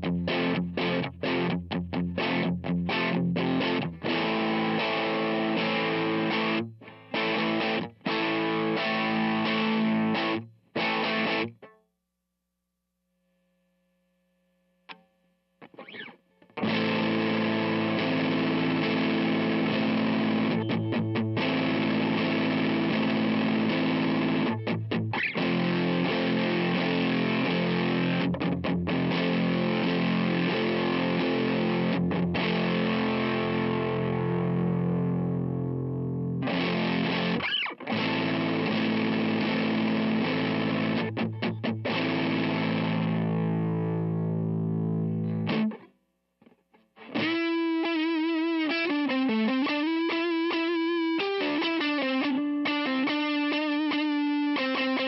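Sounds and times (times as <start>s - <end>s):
overdriven electric guitar chords: 0.0s - 11.8s, 14.6s - 55.0s
faint hum: 11.9s - 16.4s
guitar string pluck: 14.9s - 55.0s.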